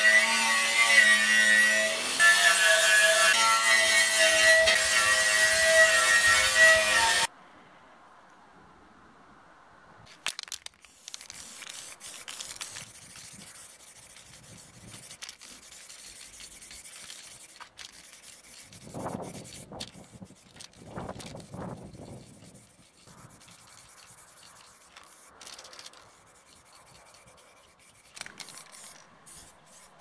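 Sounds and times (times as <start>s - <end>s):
irregular rustling: 10.1s - 30.0s
spray paint can hissing: 10.4s - 30.0s.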